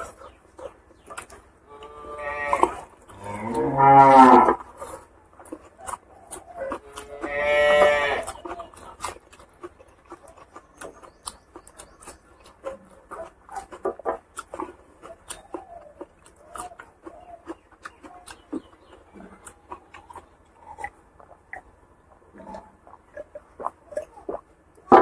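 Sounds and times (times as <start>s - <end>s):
eating and chewing smacks: 0.0s - 25.0s
cow mooing: 1.7s - 4.6s, 6.8s - 8.3s.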